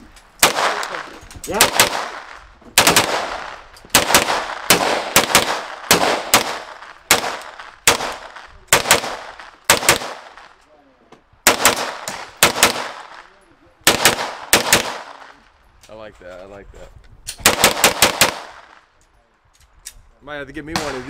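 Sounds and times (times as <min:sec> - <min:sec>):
rifle shots with echo: 0:00.4 - 0:10.6, 0:11.4 - 0:15.4, 0:17.4 - 0:18.9, 0:20.7 - 0:21.0.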